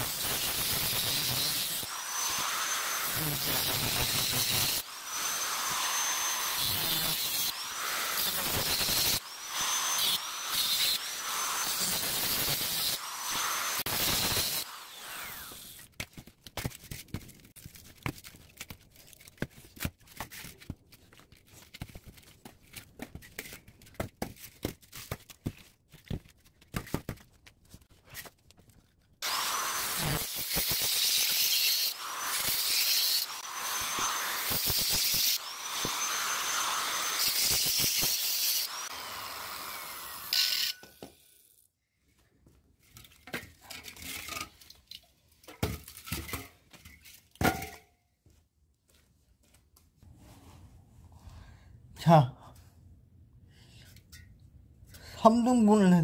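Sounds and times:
angle grinder cutting metal: 0.0 - 15.9, 29.2 - 41.5.

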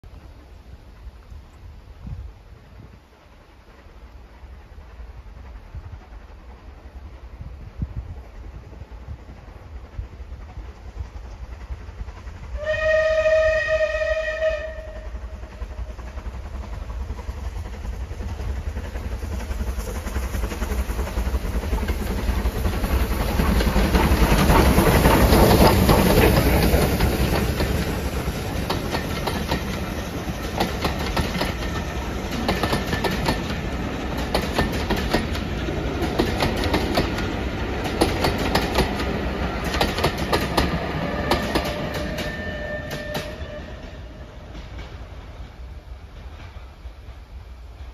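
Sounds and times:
steam locomotive passing: 0.0 - 47.9
train wheels clickety-clack on rails: 0.1 - 47.9
steam locomotive whistle: 12.5 - 15.5, 40.7 - 44.4.

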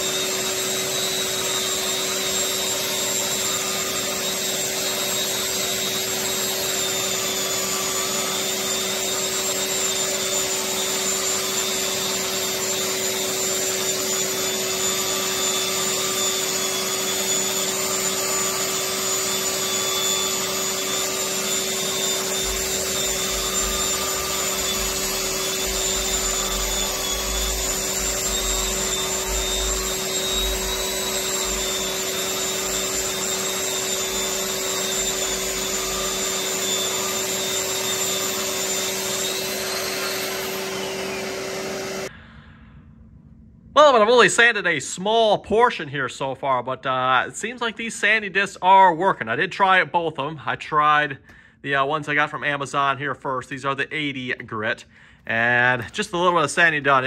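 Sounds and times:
electric sander grinding ceiling: 0.0 - 42.2, 55.3 - 57.0.

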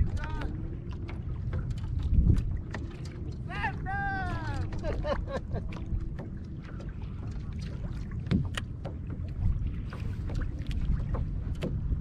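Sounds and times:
waves lapping against kayak hull: 0.0 - 12.0
wind buffeting microphone: 0.0 - 12.0.

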